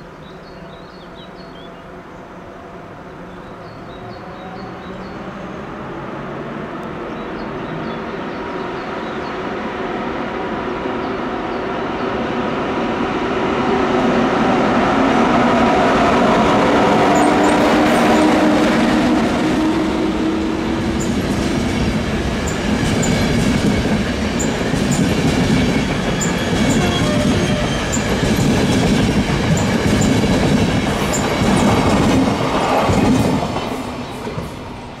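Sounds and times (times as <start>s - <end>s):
electric locomotive hum: 1.1s - 35.0s
train wheels clicking over rail joints: 21.0s - 34.7s.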